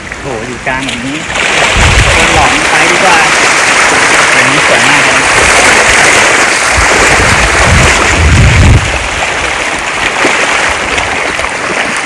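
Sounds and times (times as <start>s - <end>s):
waterfall rushing: 0.0s - 12.0s
low rumble: 6.7s - 9.5s.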